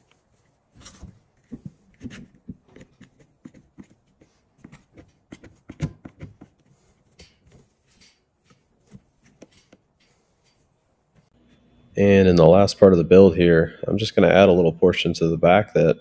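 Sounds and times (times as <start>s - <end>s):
bar clamps clicking and knocking: 7.1s - 8.7s, 9.3s - 10.7s.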